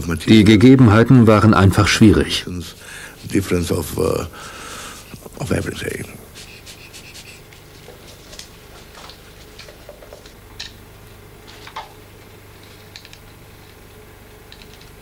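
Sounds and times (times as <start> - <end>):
steady low hum: 0.0 - 15.0
small clicks and ticks: 12.8 - 13.8, 14.5 - 15.0.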